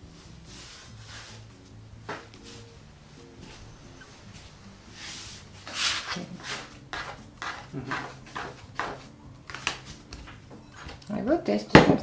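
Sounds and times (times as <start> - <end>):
soft background music: 0.0 - 12.0
hands kneading dough: 5.0 - 10.4
plastic scraper scraping surface: 5.2 - 9.1.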